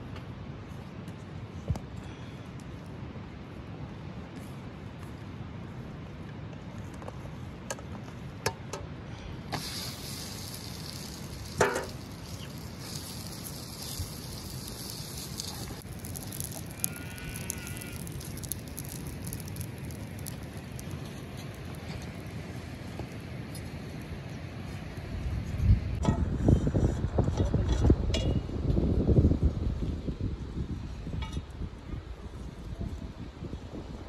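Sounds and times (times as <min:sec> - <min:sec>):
fire crackling and hissing: 0:09.0 - 0:27.2.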